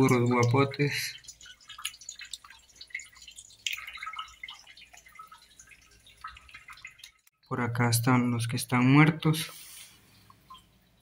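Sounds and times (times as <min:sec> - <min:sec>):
fish flopping and slapping wetly: 0:01.2 - 0:07.3.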